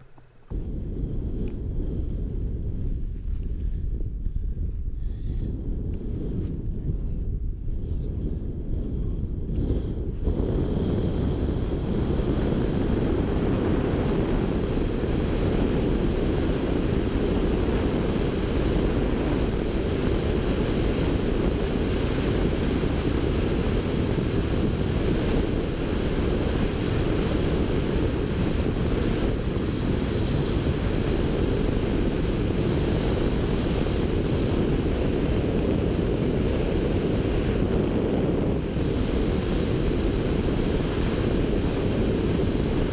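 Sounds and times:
heavy wind roar on microphone: 0.0s - 42.9s.

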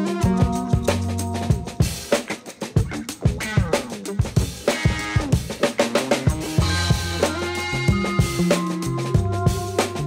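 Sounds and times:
drum kit playing fast beat: 0.0s - 10.0s.

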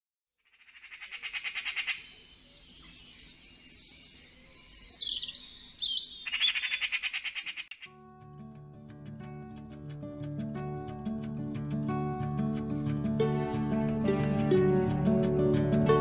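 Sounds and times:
magpie rattling chatter: 0.6s - 2.0s, 6.2s - 7.8s
magpie squawky calls: 0.6s - 2.1s, 5.9s - 7.8s
plucked guitar music: 7.9s - 16.0s.

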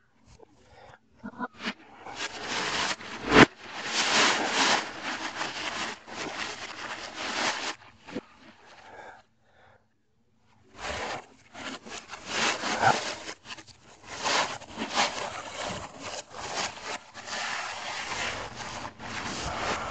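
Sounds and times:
wrapping paper crinkling and tearing: 2.0s - 8.6s, 10.8s - 19.9s.

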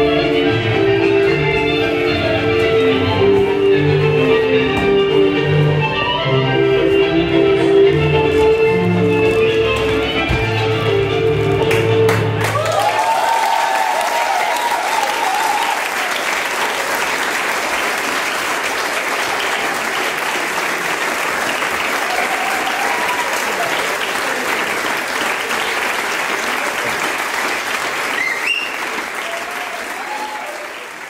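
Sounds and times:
audience applauding: 11.6s - 31.0s.

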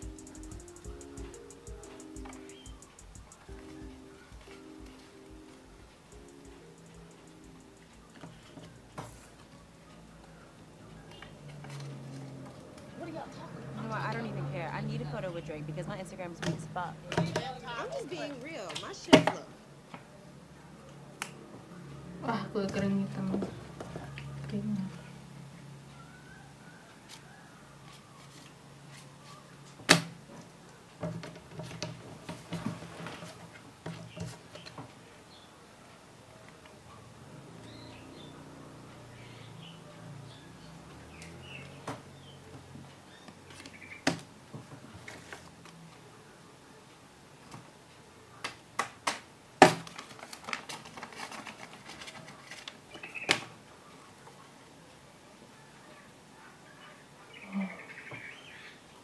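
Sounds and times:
paper and card handling: 44.9s - 45.8s, 49.6s - 53.4s.

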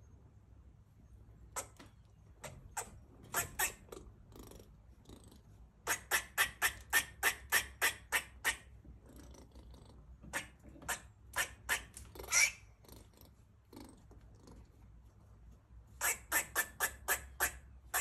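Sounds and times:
squirrel barking: 1.5s - 13.0s, 16.0s - 18.0s.

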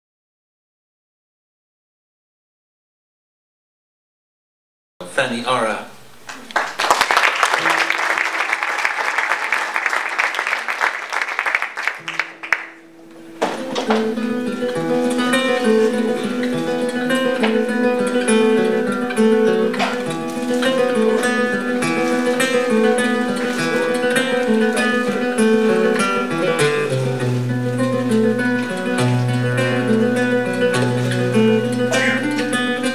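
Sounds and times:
audience applauding: 6.2s - 12.9s, 19.7s - 32.9s
flamenco guitar playing: 6.2s - 32.9s.

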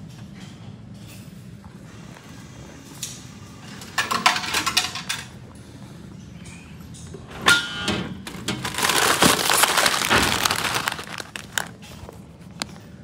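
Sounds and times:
bag knocking down vending machine: 7.4s - 11.8s
chip bag crinkling: 8.3s - 12.7s.

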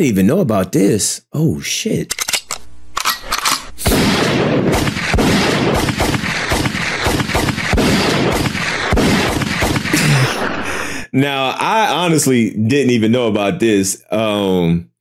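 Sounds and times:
rapid gunfire rattle: 3.6s - 10.0s
heavy gun bangs: 3.7s - 10.1s.

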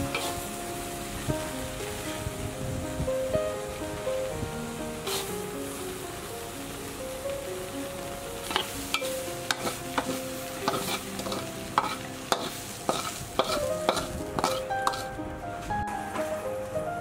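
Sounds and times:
steady sizzle: 0.0s - 17.0s
spatula scraping metal pan: 8.5s - 15.1s.

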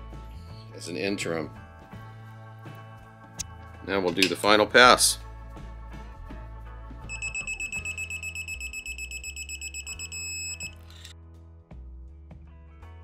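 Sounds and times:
rapidly pulsing high beep: 7.1s - 10.8s.

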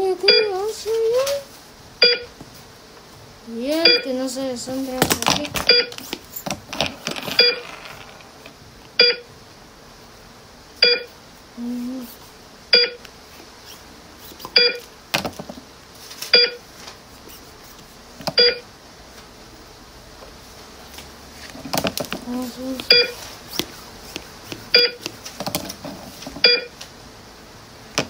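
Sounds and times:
short electronic beeps: 2.0s - 2.3s, 3.8s - 4.1s, 5.7s - 5.9s, 7.4s - 7.6s, 9.0s - 9.2s, 10.8s - 11.1s, 12.8s - 13.0s, 14.6s - 14.8s, 16.4s - 16.6s, 18.4s - 18.6s, 22.9s - 23.2s, 24.8s - 25.0s, 26.4s - 26.7s.

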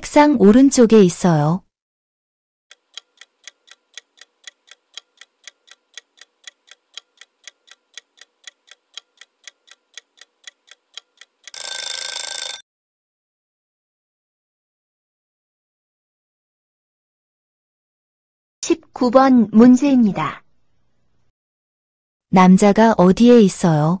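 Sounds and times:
clock ticking: 2.7s - 12.6s
alarm bell ringing: 11.5s - 12.6s.

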